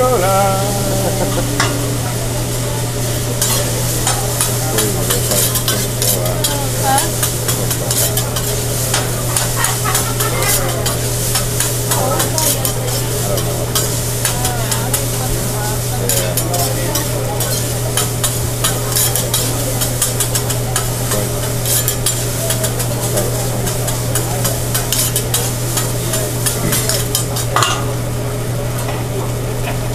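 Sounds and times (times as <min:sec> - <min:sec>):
rice sizzling: 0:00.0 - 0:29.9
metal spatula clattering on griddle: 0:03.4 - 0:15.1, 0:16.1 - 0:27.9.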